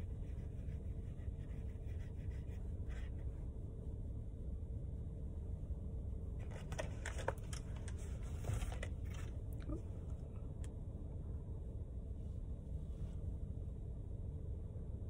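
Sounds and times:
makeup tools clicking and rustling: 0:06.4 - 0:09.3.

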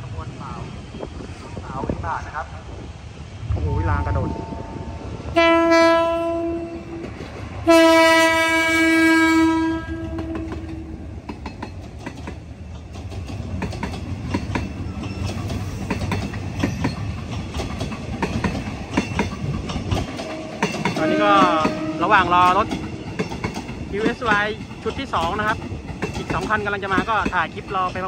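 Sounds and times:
train low rumble: 0:00.0 - 0:28.0
locomotive horn blasts: 0:04.2 - 0:07.0, 0:07.6 - 0:10.9, 0:21.0 - 0:22.3
train wheels clicking over rail joints: 0:06.9 - 0:07.7, 0:09.9 - 0:28.0.

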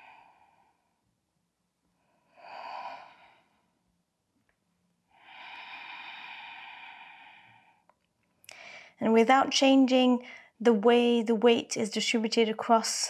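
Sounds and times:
woman breathing: 0:00.0 - 0:01.2, 0:01.9 - 0:03.9, 0:05.1 - 0:09.0, 0:10.2 - 0:10.6.

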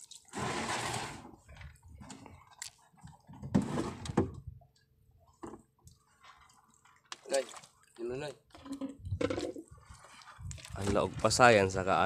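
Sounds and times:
water splashing: 0:05.9 - 0:12.0.

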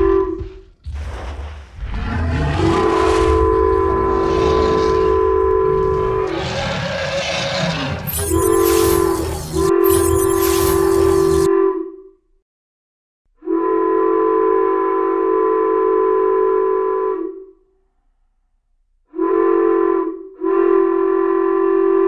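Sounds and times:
locomotive air horn blasts: 0:00.0 - 0:00.6, 0:02.8 - 0:06.0, 0:08.2 - 0:10.3, 0:11.2 - 0:12.0, 0:13.4 - 0:17.5, 0:19.1 - 0:22.0.

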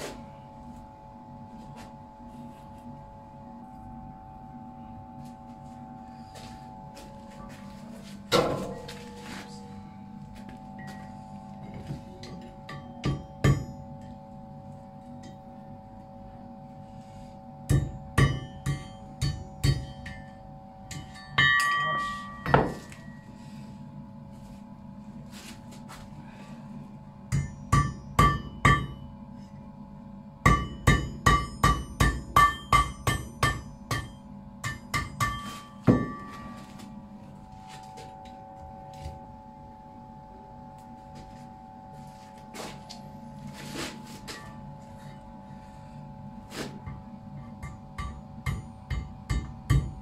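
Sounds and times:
steady hum: 0:00.0 - 0:50.0
hammer striking anvil: 0:12.3 - 0:13.9, 0:17.7 - 0:23.0, 0:27.3 - 0:29.0, 0:30.5 - 0:36.5, 0:47.6 - 0:50.0.

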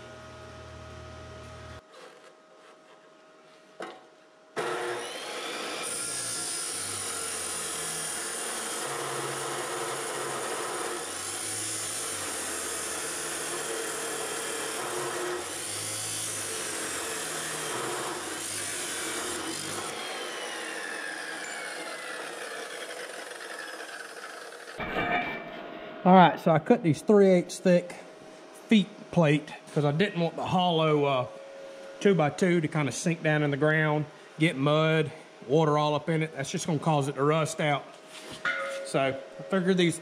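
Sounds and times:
chop saw cutting steel: 0:04.6 - 0:25.5.

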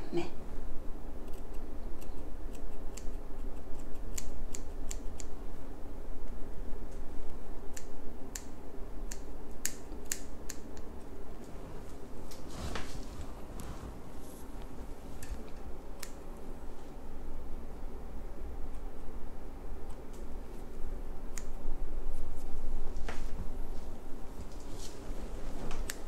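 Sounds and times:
steady low hum: 0:00.0 - 0:26.0
scissors snipping hair: 0:01.2 - 0:05.4, 0:07.7 - 0:10.9, 0:15.2 - 0:16.3, 0:21.3 - 0:21.6, 0:25.8 - 0:26.0.

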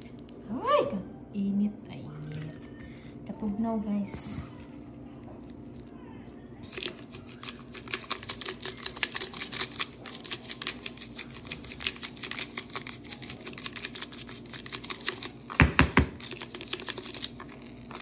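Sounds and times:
shaker rattling: 0:06.6 - 0:15.5.

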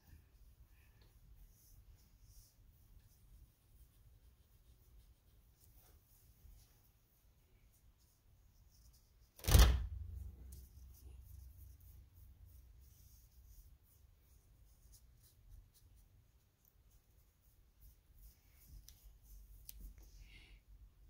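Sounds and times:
loud thump: 0:09.4 - 0:10.3.

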